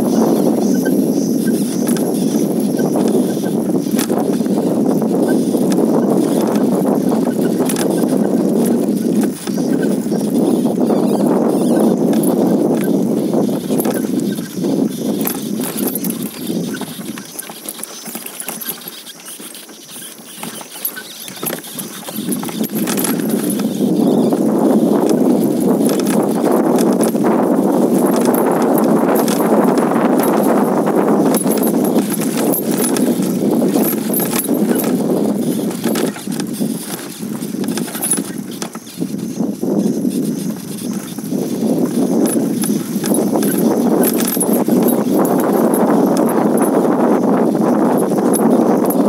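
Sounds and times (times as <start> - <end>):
stones crunching under vehicle: 0.0 - 46.8.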